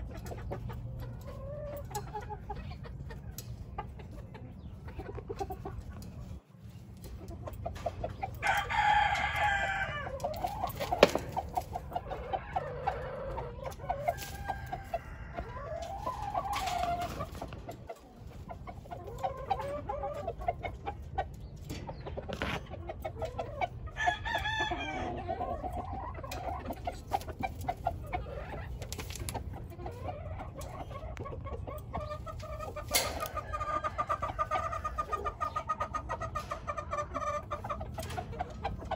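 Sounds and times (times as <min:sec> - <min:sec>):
rooster clucking: 0:00.0 - 0:38.9.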